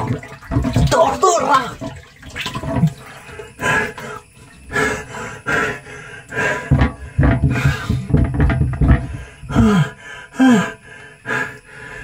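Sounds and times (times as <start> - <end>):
man grunting and gasping: 9.5 - 10.8.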